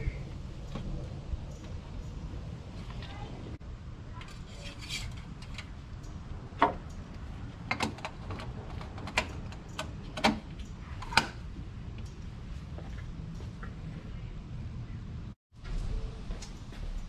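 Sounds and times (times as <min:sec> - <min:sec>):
engine cap clicks and knocks: 0:07.6 - 0:11.4.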